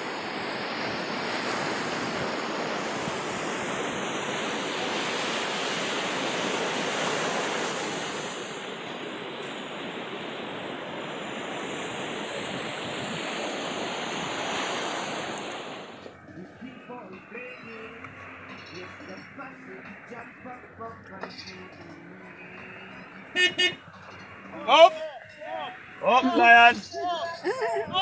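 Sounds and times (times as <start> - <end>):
waves breaking on a beach: 0.0 - 28.0.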